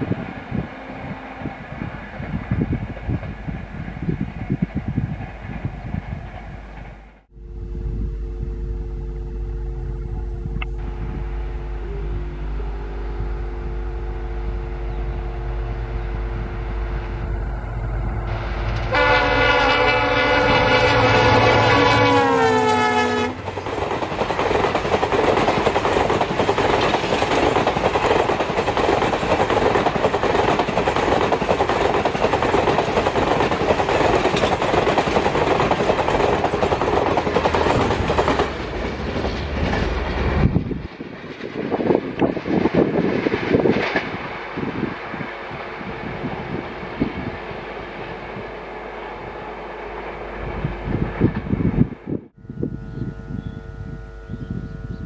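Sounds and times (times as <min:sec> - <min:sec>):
locomotive multi-tone horn: 0:00.0 - 0:01.9, 0:10.8 - 0:23.5, 0:52.4 - 0:55.0
locomotive engine hum: 0:00.0 - 0:55.0
train wheels clattering over rail joints: 0:23.4 - 0:44.7.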